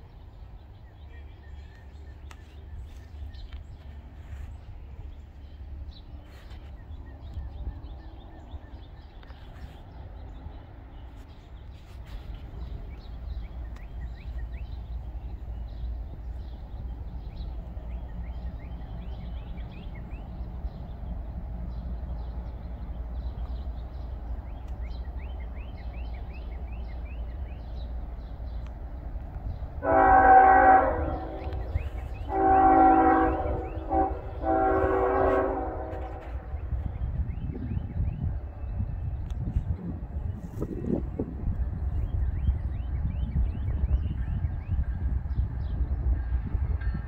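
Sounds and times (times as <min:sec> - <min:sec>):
freight train rumbling: 0:00.0 - 0:47.0
train air horn blasts: 0:29.8 - 0:36.6.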